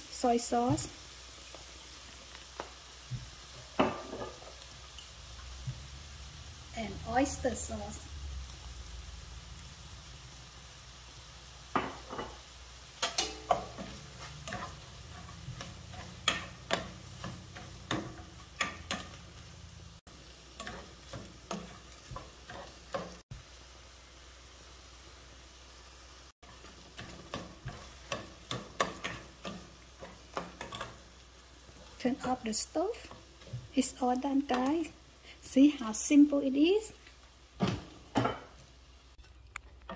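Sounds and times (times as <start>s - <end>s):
spatula scraping frying pan: 13.0s - 19.7s, 20.4s - 23.2s, 26.4s - 33.8s.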